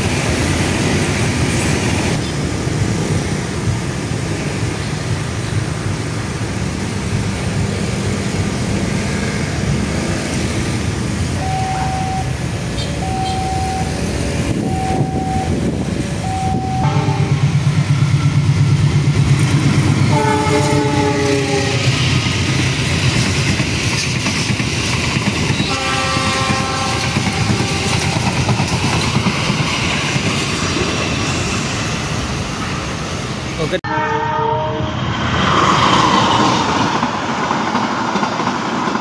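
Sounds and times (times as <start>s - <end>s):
carriages clattering on rails: 0.0s - 33.8s, 35.0s - 39.0s
diesel locomotive rumble: 0.0s - 39.0s
level crossing warning tones: 11.3s - 17.7s
train horn blast: 16.8s - 17.5s, 20.1s - 22.0s, 25.6s - 28.1s, 33.8s - 35.0s.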